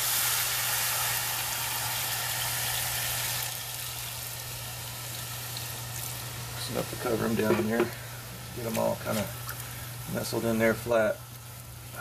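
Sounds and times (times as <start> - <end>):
steady low hum: 4.2 - 12.0.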